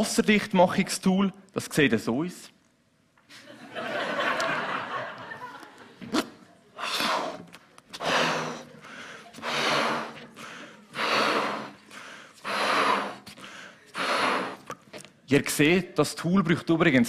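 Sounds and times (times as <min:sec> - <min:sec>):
man blowing into balloon: 0:06.1 - 0:14.8
in-breaths: 0:06.8 - 0:14.7.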